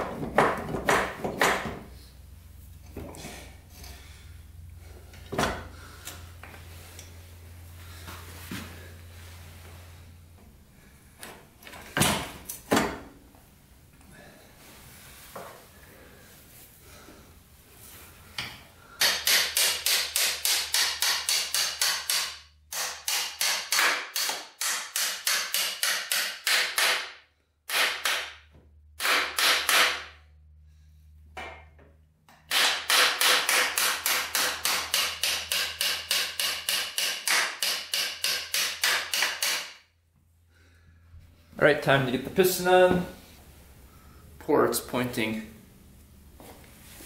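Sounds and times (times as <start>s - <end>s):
hammer strikes: 0.0s - 1.8s, 18.4s - 27.1s, 27.7s - 30.1s, 32.3s - 39.8s.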